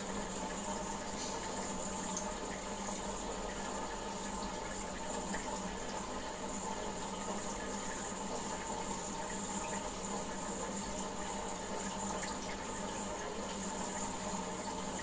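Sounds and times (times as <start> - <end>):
water trickling in a tank: 0.0 - 15.0.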